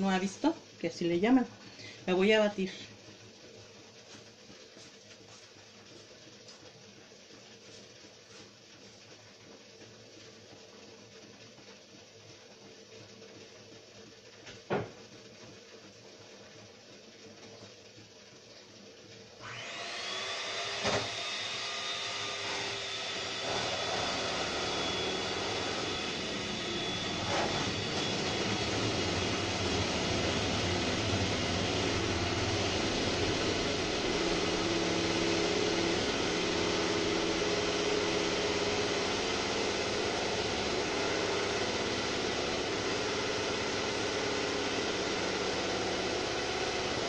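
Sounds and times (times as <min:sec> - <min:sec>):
electric mixer whining: 0:19.4 - 0:47.0.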